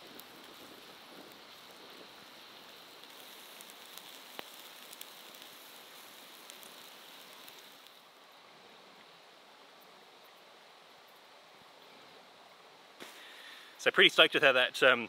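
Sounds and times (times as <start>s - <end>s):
meat sizzling on grill: 0.0s - 8.5s, 13.0s - 14.3s
fire crackling: 0.0s - 15.0s.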